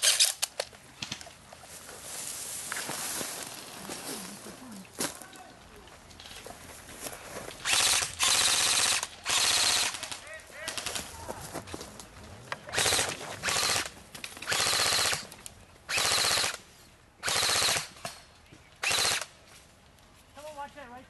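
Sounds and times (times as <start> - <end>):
airsoft rifles firing bursts: 7.6 - 11.0, 12.7 - 15.3, 15.9 - 16.6, 17.2 - 18.2, 18.8 - 19.3.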